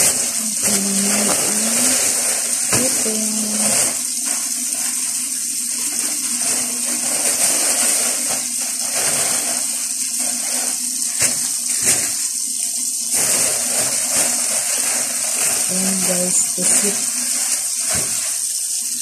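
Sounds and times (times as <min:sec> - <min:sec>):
plastic bag crinkling: 0:00.0 - 0:12.4, 0:13.0 - 0:18.6
faucet running into sink: 0:00.0 - 0:19.0.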